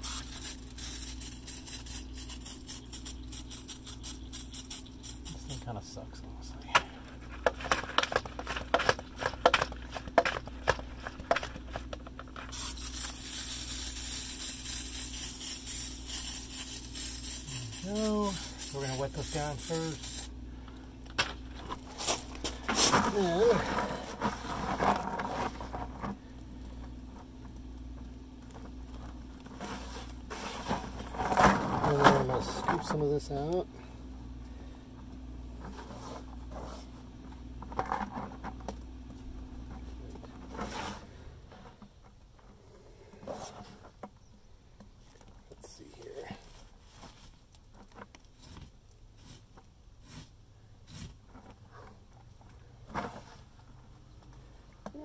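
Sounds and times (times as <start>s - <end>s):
wet stucco scraping and smearing: 0.0s - 5.6s, 7.3s - 20.3s, 21.6s - 26.3s, 28.5s - 33.4s, 35.6s - 37.0s, 40.4s - 41.2s, 46.1s - 51.9s
faint steady hum: 0.0s - 55.0s.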